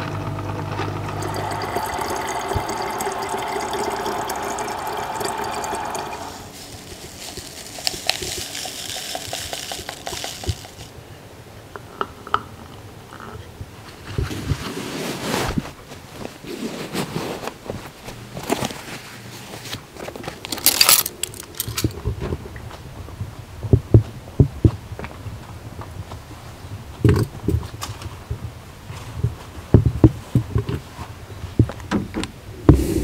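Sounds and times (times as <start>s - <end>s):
powder pouring into plastic bottle: 1.0s - 10.9s
loud rustle: 6.4s - 10.9s
clicks and knocks of gear handled: 20.0s - 22.3s.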